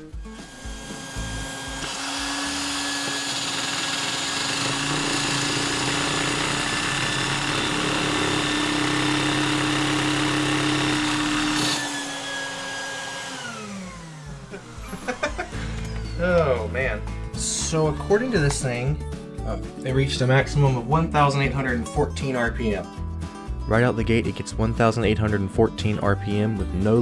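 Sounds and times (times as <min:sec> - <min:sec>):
vacuum cleaner running: 0:00.0 - 0:16.6
small engine spinning fast: 0:00.3 - 0:15.5.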